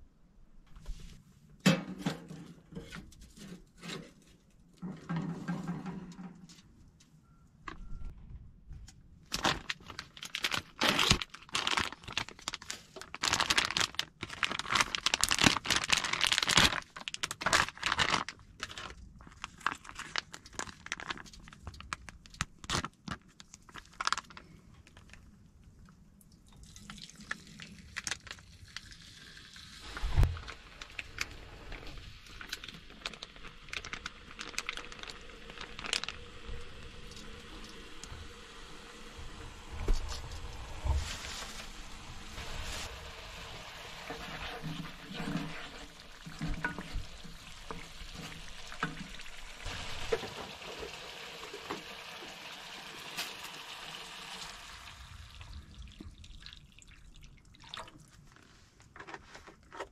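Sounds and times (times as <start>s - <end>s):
plastic packet crinkling and tearing: 9.3s - 25.2s, 26.8s - 29.1s, 29.8s - 38.4s, 40.0s - 52.2s
sizzling in a frying pan: 31.7s - 55.4s.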